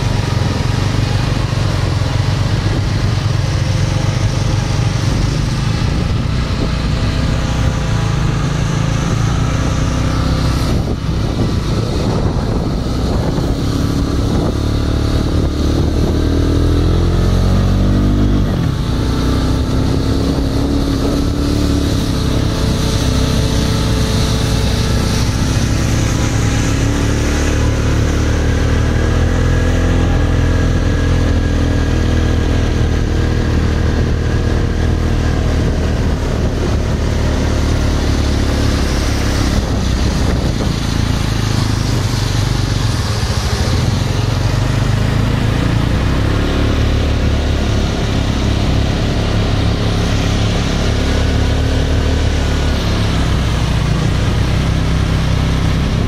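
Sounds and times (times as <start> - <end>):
disc mowers cutting grass: 0.0 - 56.0
tractor diesel engine under load: 0.0 - 56.0.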